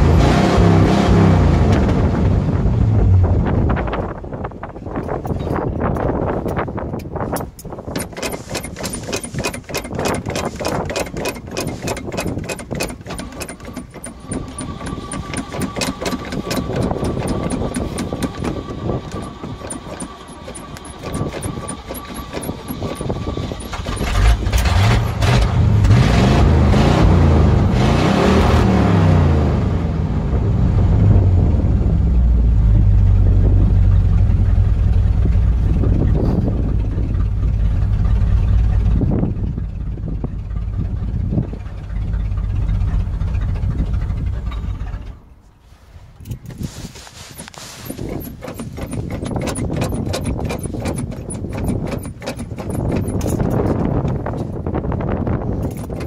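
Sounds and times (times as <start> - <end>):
engine revving: 0.0 - 3.9, 8.0 - 45.2
engine running steadily: 0.0 - 56.0
pickup engine cranking on starter: 5.6 - 26.0, 47.3 - 56.0.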